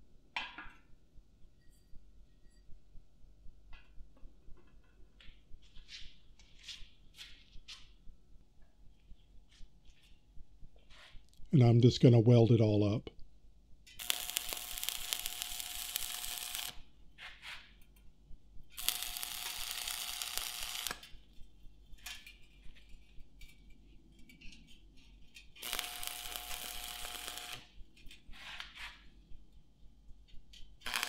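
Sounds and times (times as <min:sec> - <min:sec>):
welding arc crackling and sizzling: 0:13.9 - 0:16.8, 0:18.7 - 0:21.2, 0:25.4 - 0:28.7, 0:30.8 - 0:31.0
welding rod sputters: 0:14.0 - 0:16.8, 0:18.7 - 0:21.1, 0:25.6 - 0:27.7.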